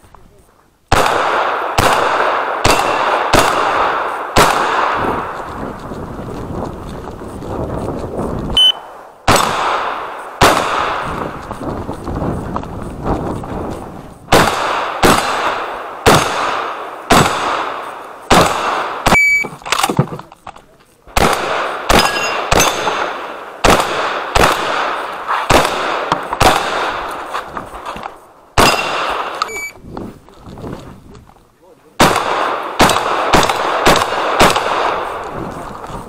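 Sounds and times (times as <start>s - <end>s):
shotgun shots with echo: 0.9s - 5.3s, 8.8s - 11.3s, 14.3s - 19.3s, 21.2s - 27.1s, 28.6s - 29.4s, 32.0s - 35.2s
metallic ring of steel targets: 21.9s - 22.9s.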